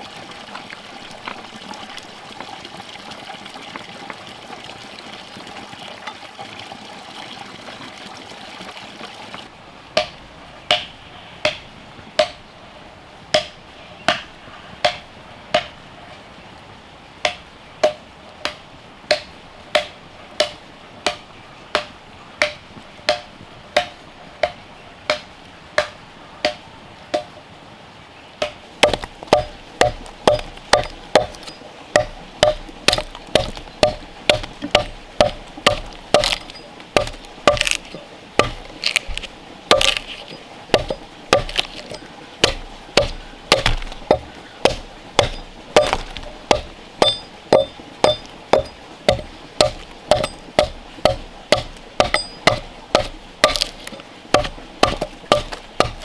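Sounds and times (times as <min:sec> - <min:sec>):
blade chopping into a log: 0:28.8 - 0:56.0.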